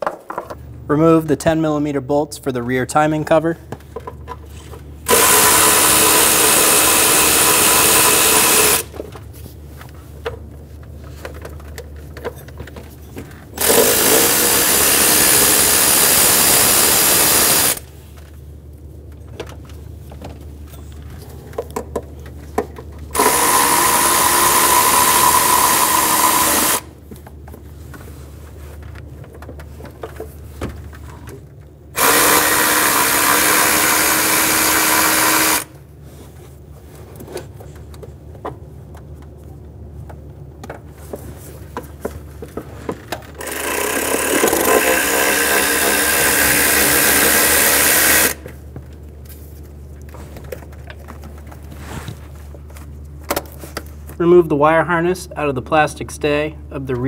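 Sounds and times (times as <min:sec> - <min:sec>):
power ratchet spinning: 0:05.1 - 0:08.9, 0:13.6 - 0:17.8, 0:23.1 - 0:26.9, 0:32.0 - 0:35.7, 0:43.4 - 0:48.4.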